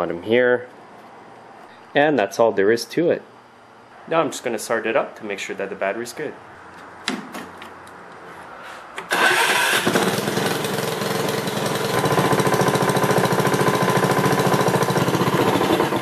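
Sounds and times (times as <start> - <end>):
lawnmower engine starting and running: 9.0 - 16.0.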